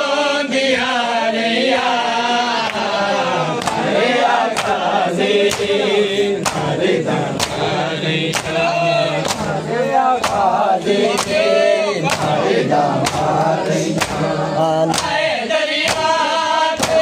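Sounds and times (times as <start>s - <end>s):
men chanting a lament in unison: 0.0s - 17.0s
hands slapping bare chests: 3.5s - 5.8s, 6.4s - 6.8s, 7.4s - 7.7s, 8.3s - 9.6s, 10.2s - 16.2s, 16.8s - 17.0s.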